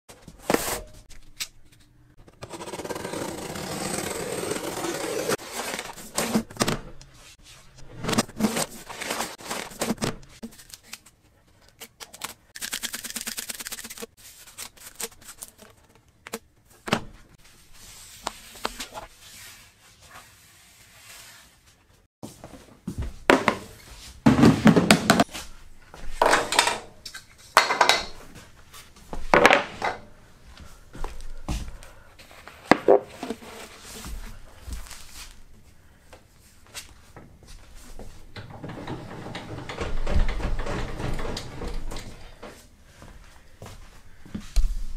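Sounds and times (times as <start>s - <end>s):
cardboard box scraping over metal: 2.4s - 6.5s.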